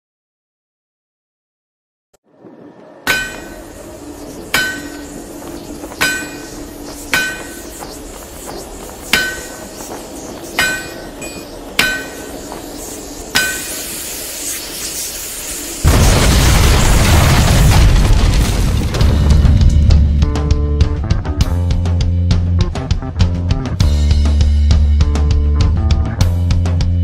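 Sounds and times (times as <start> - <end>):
hammer striking metal: 3.1 - 3.9, 4.5 - 8.0, 9.0 - 9.8, 10.6 - 12.6, 13.3 - 13.9
hiss: 3.3 - 16.3
loud music with a boom: 18.9 - 27.0.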